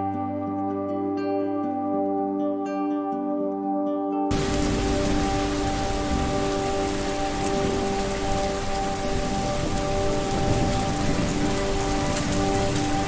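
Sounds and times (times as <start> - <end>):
ambient music: 0.0 - 13.0
steady rain: 4.3 - 13.0.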